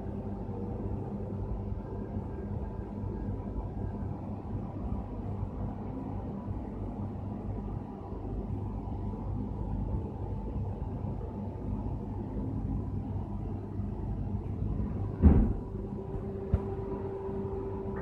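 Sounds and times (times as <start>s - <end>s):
factory machinery hum: 0.0s - 18.0s
mid-pitched hum: 0.0s - 18.0s
loud thump: 15.2s - 15.8s.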